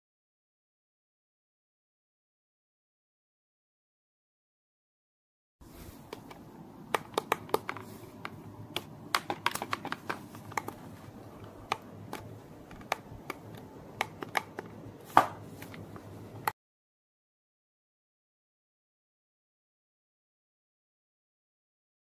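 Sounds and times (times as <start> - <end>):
faint low background noise: 5.6 - 16.5
clicks and taps of handled objects: 6.1 - 10.8, 11.4 - 16.5.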